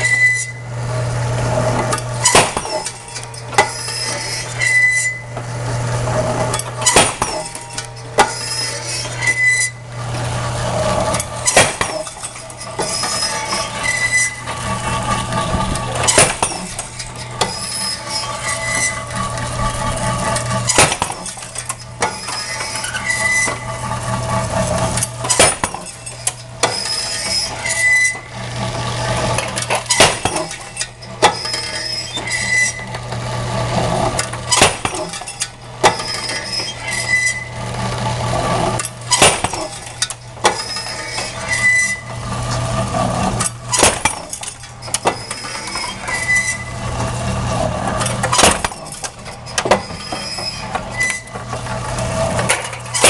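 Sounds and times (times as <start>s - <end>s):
short high squeak: 0.0s - 0.7s, 2.2s - 5.3s, 6.8s - 9.8s, 11.4s - 14.5s, 16.1s - 19.1s, 20.7s - 23.7s, 25.3s - 28.3s, 29.9s - 32.9s, 34.5s - 37.6s, 40.5s - 42.2s, 44.8s - 46.8s, 48.3s - 51.3s
electric motor hum: 0.0s - 34.6s, 39.8s - 43.8s, 44.4s - 48.4s
sharp machine impacts: 1.8s - 5.2s, 6.5s - 9.8s, 10.9s - 23.7s, 24.9s - 28.3s, 29.2s - 32.8s, 34.1s - 37.4s, 38.8s - 42.0s, 43.4s - 46.6s, 47.9s - 51.3s.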